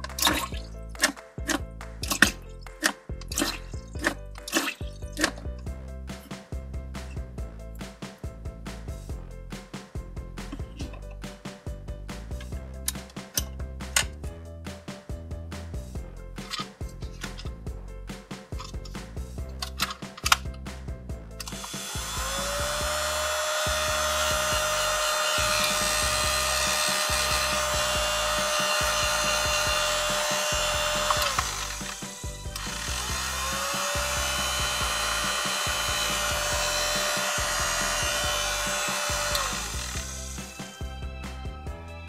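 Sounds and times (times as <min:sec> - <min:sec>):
toy hair dryer motor whirring: 0:21.4 - 0:40.8.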